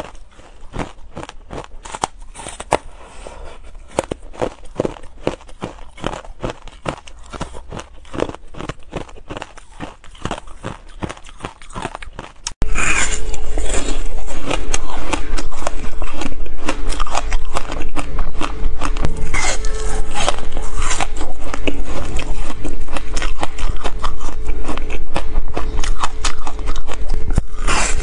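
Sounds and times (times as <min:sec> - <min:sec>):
crunching frozen ice: 0:00.0 - 0:03.0, 0:03.8 - 0:28.0
faint steady hum: 0:00.0 - 0:28.0.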